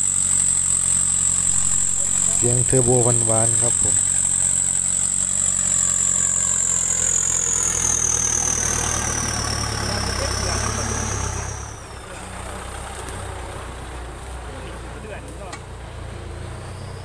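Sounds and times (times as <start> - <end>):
high turbo whistle: 0.0 - 12.0
diesel tractor engine droning: 0.0 - 17.0.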